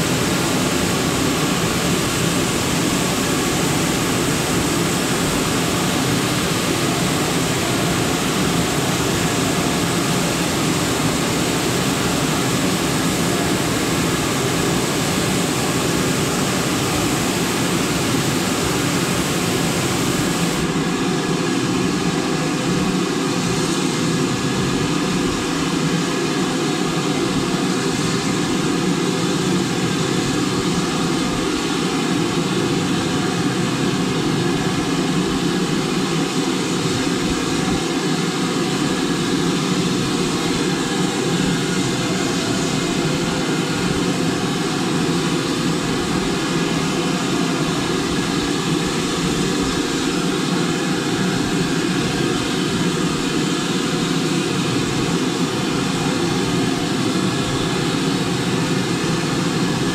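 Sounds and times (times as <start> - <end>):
steam locomotive running: 0.0 - 59.9.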